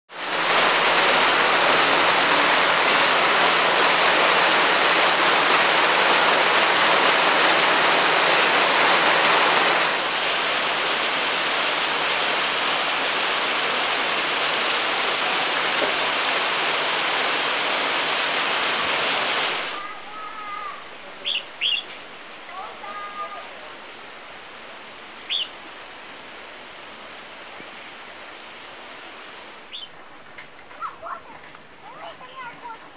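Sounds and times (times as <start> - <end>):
water splashing over fountain wall: 0.1 - 21.4, 22.0 - 23.6, 30.8 - 32.9
steady water hiss: 0.1 - 32.9.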